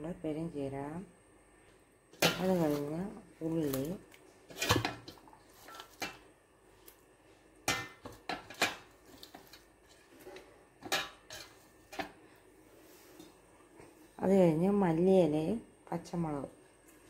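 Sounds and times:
pot and utensils clinking: 0:04.5 - 0:06.3, 0:07.7 - 0:12.2.

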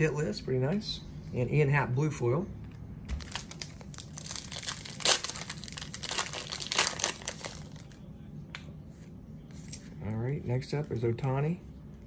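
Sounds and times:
card pack wrapper crinkling and tearing: 0:03.1 - 0:08.0.

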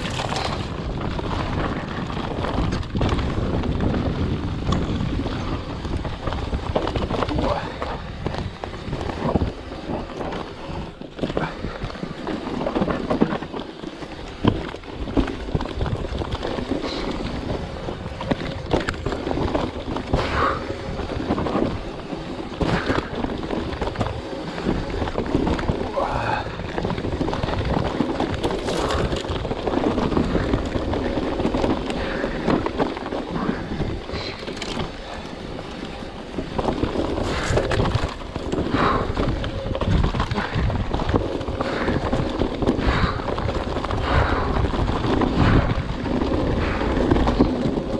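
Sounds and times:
bike knocking and rattling: 0:00.0 - 0:47.9
tyres rumbling on dirt: 0:00.0 - 0:47.9
wind buffeting microphone: 0:00.0 - 0:47.9.

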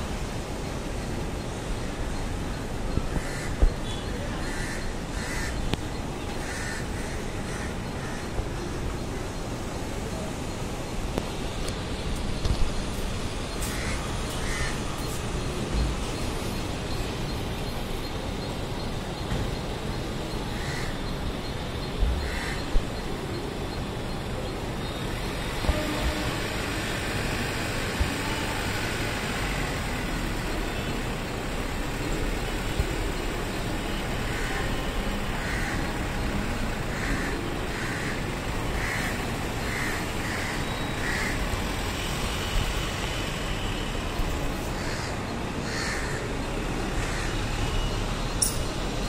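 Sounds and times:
street traffic engine hum: 0:00.0 - 0:49.0
bird cawing: 0:03.1 - 0:08.4, 0:13.7 - 0:14.9, 0:20.5 - 0:21.1, 0:22.2 - 0:22.7, 0:36.9 - 0:41.8, 0:44.8 - 0:46.3.

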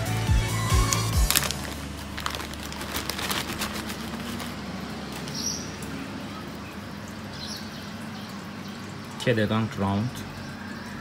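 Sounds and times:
plastic bag crinkling: 0:00.6 - 0:05.5.

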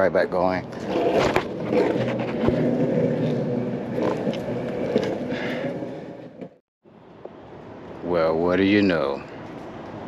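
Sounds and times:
longboard wheels rolling on concrete: 0:00.0 - 0:06.6.

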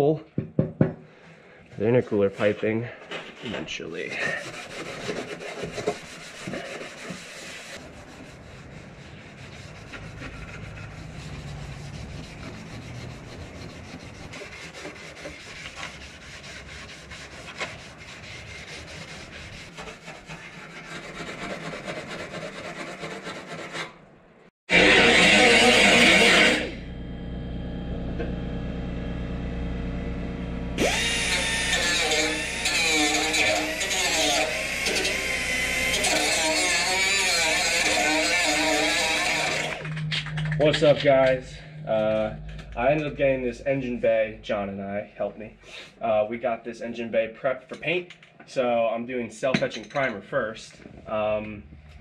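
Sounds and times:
scuff pad rubbing sheet metal: 0:04.2 - 0:23.9, 0:31.0 - 0:43.1
pneumatic hand tool running: 0:30.8 - 0:40.0.

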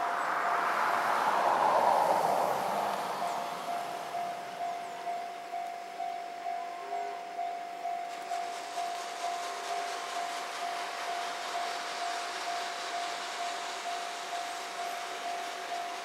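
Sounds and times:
rushing noise: 0:00.0 - 0:04.7, 0:08.1 - 0:16.0
level crossing warning bell: 0:03.2 - 0:16.0.

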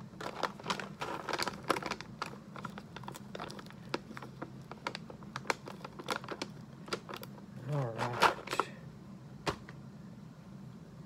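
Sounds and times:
coffee bag crinkling: 0:00.0 - 0:08.7.

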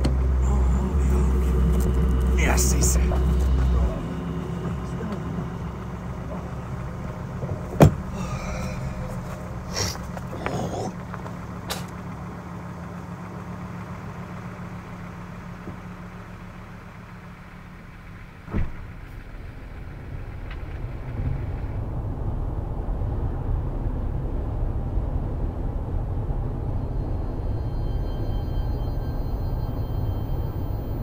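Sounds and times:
car engine hum inside cabin: 0:00.0 - 0:31.0
loud low rumble: 0:00.0 - 0:31.0
sharp thump: 0:07.7 - 0:08.2.

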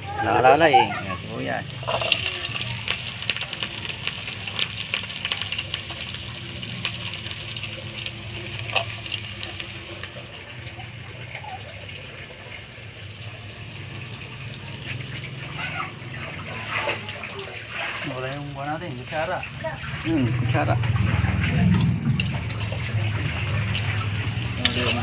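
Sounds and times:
pot of liquid bubbling: 0:00.0 - 0:25.0
fire crackling: 0:01.6 - 0:11.2.

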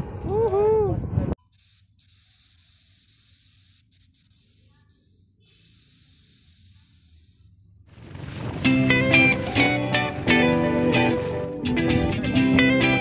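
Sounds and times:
music: 0:08.6 - 0:13.0.

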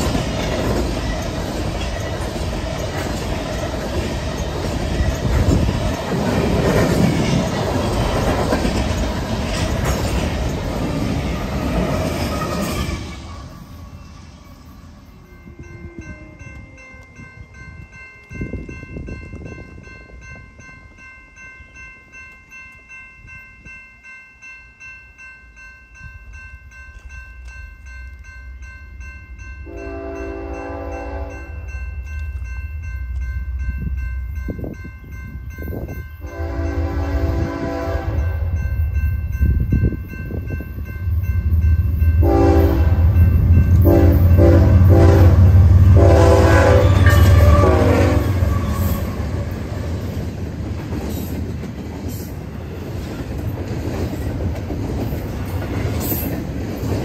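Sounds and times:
low train rumble: 0:00.0 - 0:57.0
railroad crossing bell ringing: 0:00.0 - 0:57.0
locomotive air horn blasts: 0:29.7 - 0:31.6, 0:36.2 - 0:38.4, 0:42.2 - 0:43.2, 0:43.8 - 0:49.4.

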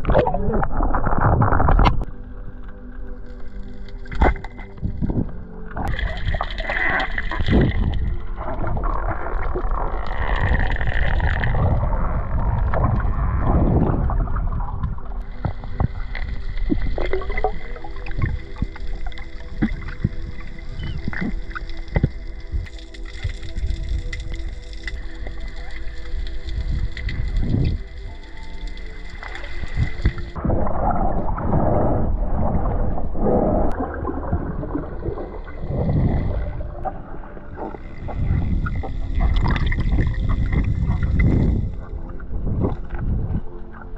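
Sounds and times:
underwater rushing and gurgling: 0:00.0 - 0:43.9.

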